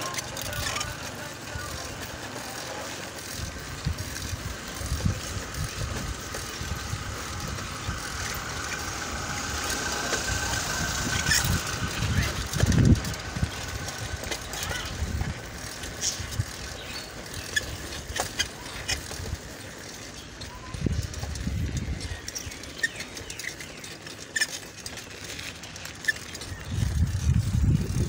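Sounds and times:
wind buffeting microphone: 3.2 - 19.8, 20.4 - 23.8, 26.3 - 28.0.

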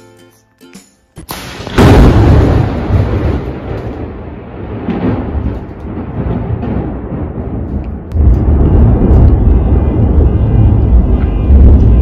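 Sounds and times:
thunder crack and rumble: 1.3 - 12.0.

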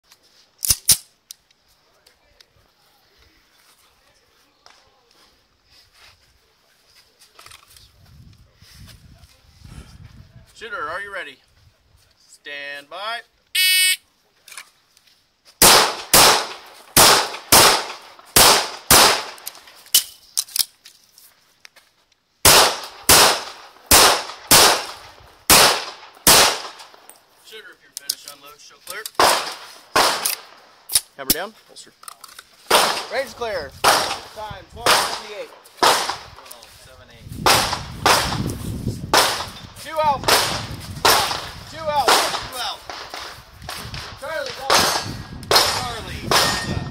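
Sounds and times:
pistol shots in quick pairs: 15.6 - 19.5, 22.4 - 26.9, 29.2 - 30.6, 32.7 - 36.3, 37.4 - 38.5, 39.1 - 39.6, 40.2 - 46.9.

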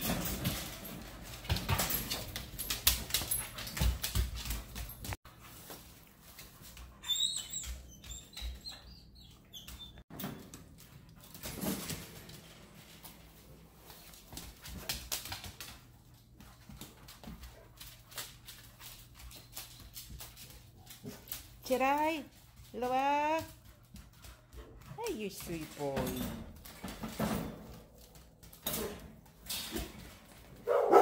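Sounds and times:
dogs whining: 6.9 - 10.0.

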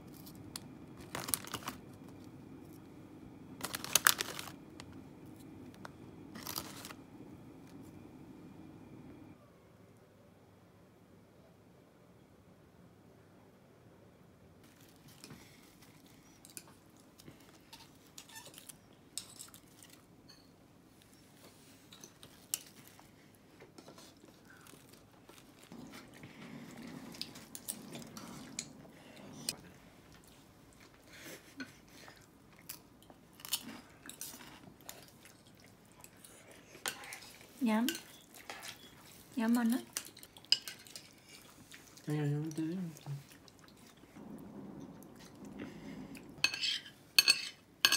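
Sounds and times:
lettuce leaves rustling: 3.6 - 4.6, 6.4 - 7.0
tableware clicks and taps: 46.4 - 47.9.

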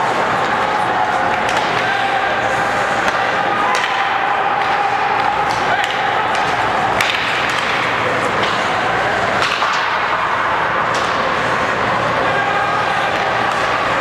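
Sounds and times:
arena noise: 0.0 - 14.0
stick hitting puck: 3.0 - 8.8, 9.4 - 10.2, 10.9 - 11.3.

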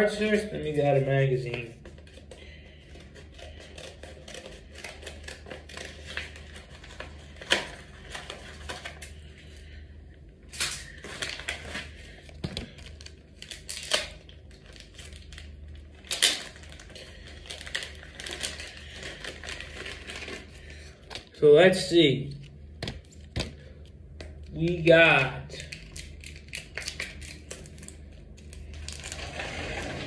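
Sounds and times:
steady low hum: 0.0 - 30.0
paper envelope rustling: 1.4 - 9.6, 10.9 - 21.3, 25.6 - 30.0.

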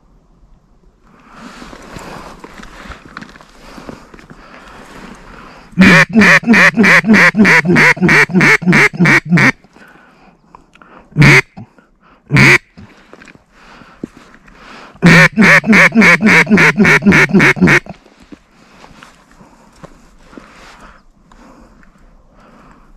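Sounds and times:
duck call quacks: 5.8 - 9.6, 11.2 - 11.6, 12.3 - 12.8, 15.0 - 18.0.

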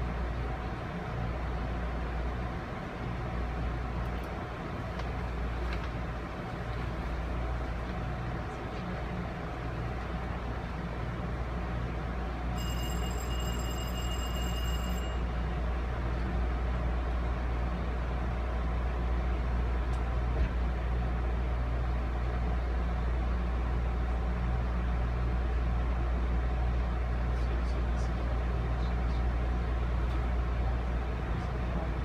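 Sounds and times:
train coach rumbling on rails: 0.0 - 32.0
high steady tone: 12.6 - 15.6.

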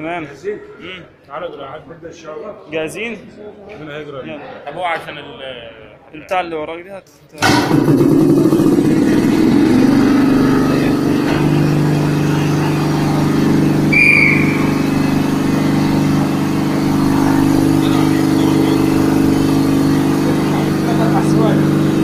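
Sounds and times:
compressor motor hum: 7.4 - 22.0
short high-pitched chirp: 13.9 - 14.8.

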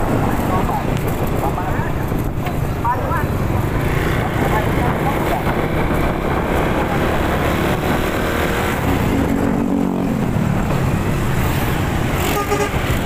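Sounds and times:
vehicle engine and road noise: 0.0 - 13.0.

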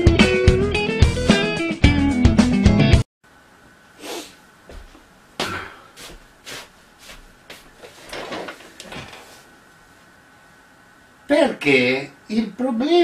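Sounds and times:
footsteps: 4.6 - 9.5
rustling: 6.0 - 10.1
chair creaking: 7.5 - 9.5.

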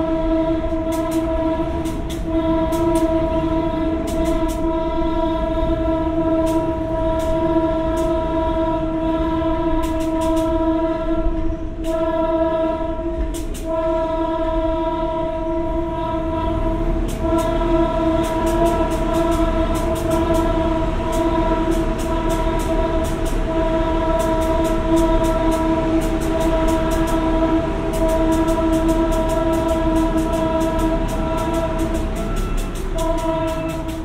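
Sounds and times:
diesel engine idling: 15.8 - 34.0
faint ticking: 17.0 - 34.0.

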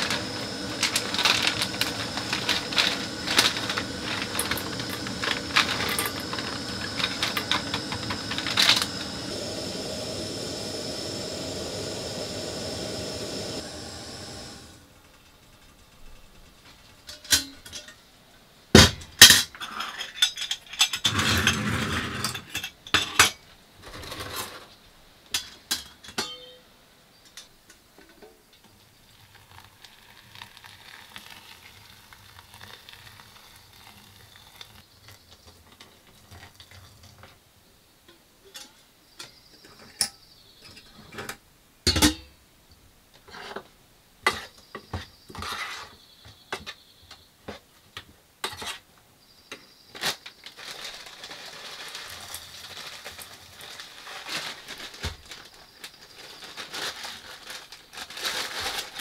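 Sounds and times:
plastic bag rustling: 0.0 - 10.4, 50.0 - 59.0
water pouring from kettle: 0.0 - 14.8
pot and utensils clinking: 25.4 - 26.6.

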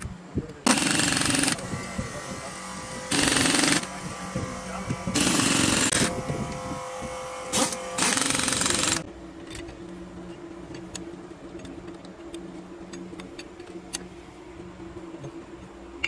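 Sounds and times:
steady low hum: 0.0 - 16.0
power tool bursts: 0.7 - 9.0.

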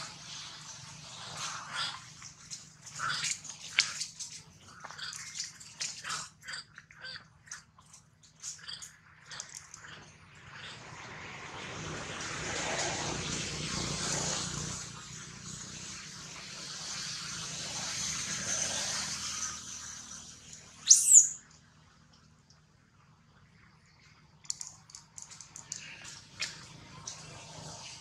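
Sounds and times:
sharp rising chirp: 20.8 - 21.4
faint clicks: 24.4 - 27.2.

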